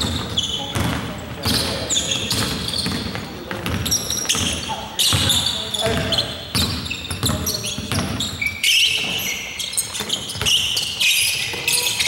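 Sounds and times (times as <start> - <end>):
ball bouncing on hard court: 0.0 - 9.2
short high squeaks: 4.0 - 12.0.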